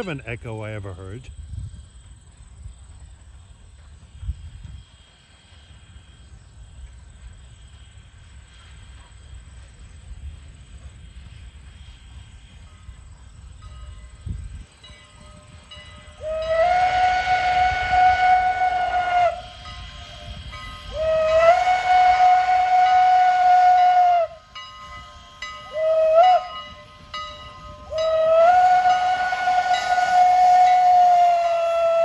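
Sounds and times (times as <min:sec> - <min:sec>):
shrill steam whistle blasts: 0:13.9 - 0:32.0.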